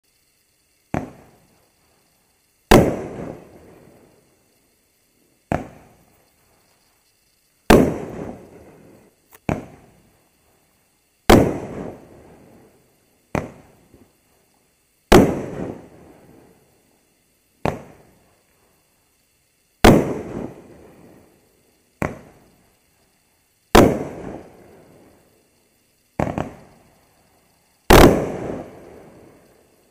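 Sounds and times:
firework launch thump: 0.9s - 1.4s, 5.5s - 6.0s, 9.3s - 9.9s, 13.3s - 14.0s, 17.6s - 18.0s, 22.0s - 22.4s, 26.2s - 26.7s.

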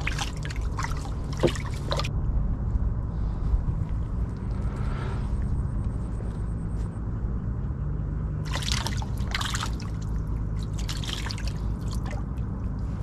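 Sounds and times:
water trickling and dripping: 0.0s - 2.1s, 8.5s - 13.0s
steady low hum: 0.0s - 13.0s.

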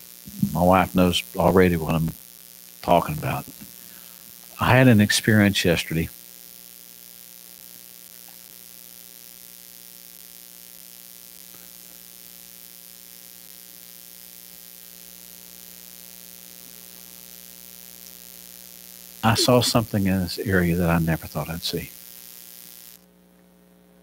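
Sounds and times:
faint microphone hiss: 0.0s - 6.2s, 16.4s - 22.1s
electrical mains hum: 0.0s - 24.0s.

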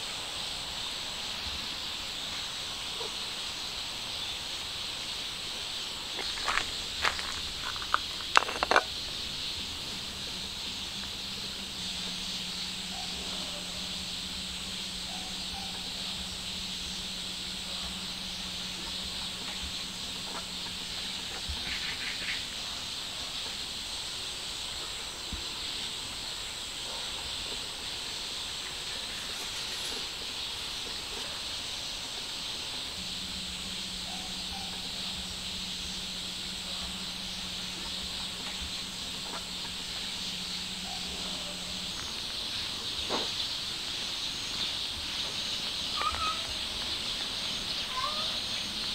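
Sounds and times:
faint low hum: 0.0s - 48.9s
high-pitched outdoor hiss: 0.0s - 48.9s
faint bird chirps: 28.8s - 48.9s.

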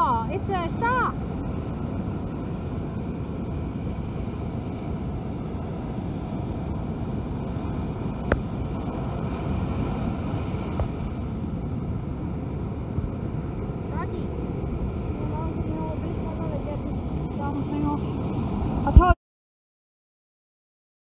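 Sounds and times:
surf breaking on beach: 0.0s - 19.2s
wind buffeting microphone: 0.0s - 19.2s.

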